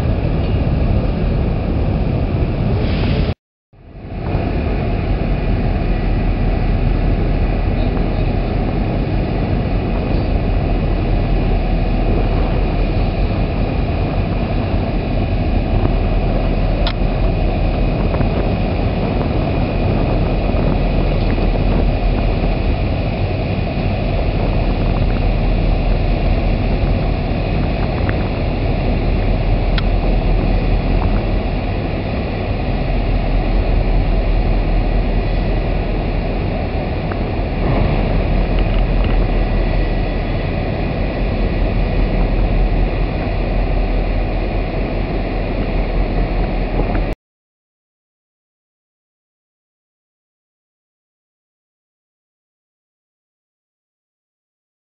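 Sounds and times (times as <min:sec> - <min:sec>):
ship engines humming: 0:03.8 - 0:47.2.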